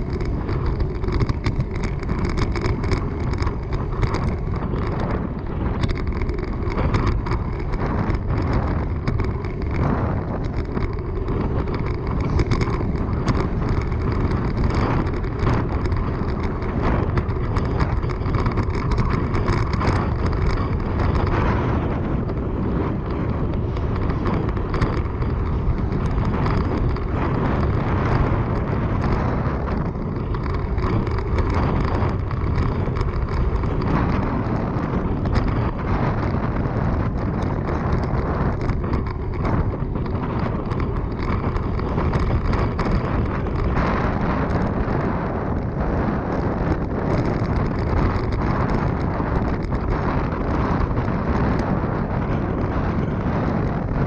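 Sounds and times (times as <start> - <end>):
bicycle tyre and road noise: 0.0 - 54.0
wind buffeting microphone: 0.0 - 54.0.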